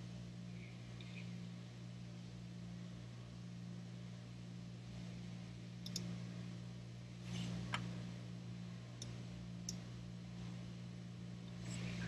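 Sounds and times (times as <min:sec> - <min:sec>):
steady low hum: 0:00.0 - 0:12.0
computer mouse clicks: 0:05.8 - 0:06.1.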